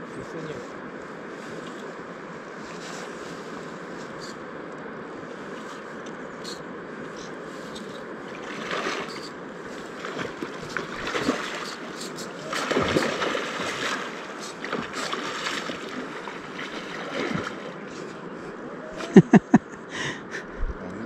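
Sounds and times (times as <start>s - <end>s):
rushing river water: 6.5s - 18.8s
splashing water: 8.4s - 9.3s, 9.9s - 17.8s.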